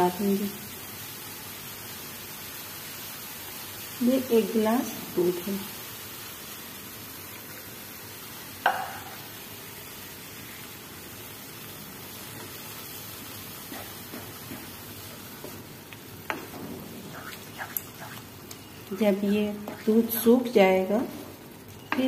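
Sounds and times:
food sizzling in a frying pan: 0.0s - 22.0s
wooden spatula stirring: 16.3s - 20.2s.

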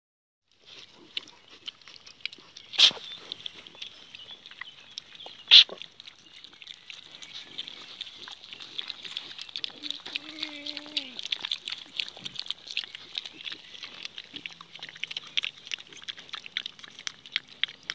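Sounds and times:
piglets squeaking: 1.0s - 17.9s.

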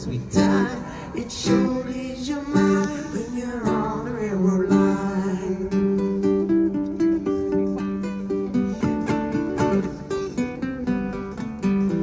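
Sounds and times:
person singing: 0.0s - 6.2s
acoustic guitar strumming: 0.0s - 12.0s.

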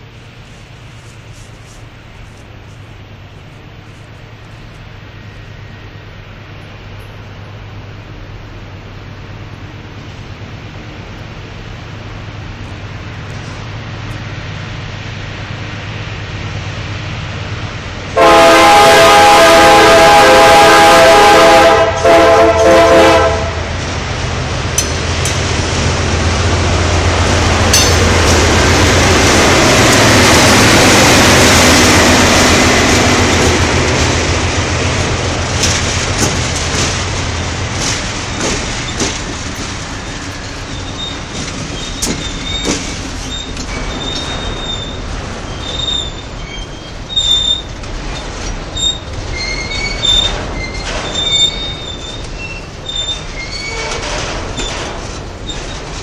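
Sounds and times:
locomotive engines droning: 0.0s - 56.0s
wheel squeals: 40.0s - 56.0s.

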